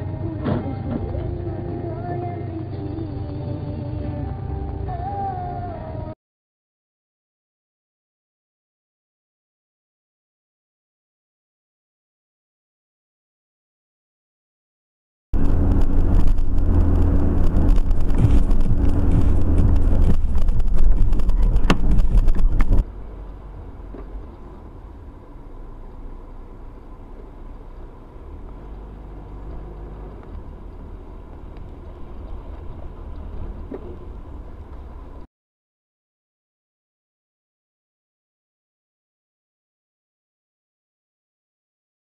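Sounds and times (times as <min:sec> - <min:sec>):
engine and tyre rumble: 0:00.0 - 0:06.2, 0:15.4 - 0:35.3
quiet car drive noise: 0:00.0 - 0:06.2, 0:15.4 - 0:35.3.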